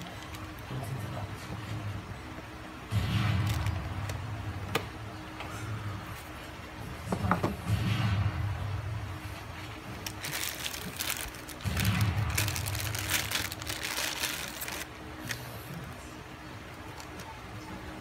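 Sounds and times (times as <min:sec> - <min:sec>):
plastic bag crinkling: 0:00.0 - 0:00.8, 0:03.3 - 0:04.2, 0:09.5 - 0:15.7, 0:16.7 - 0:17.6
low muffled background sound: 0:00.0 - 0:18.0.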